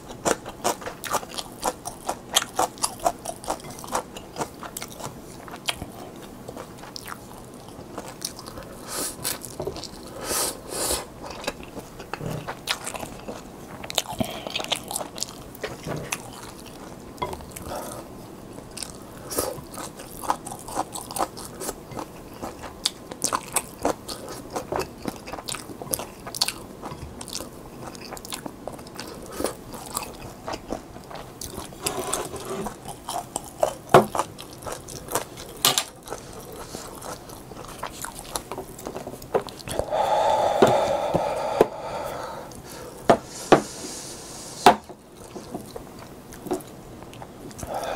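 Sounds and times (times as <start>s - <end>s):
person chewing noodles: 0.0s - 47.9s.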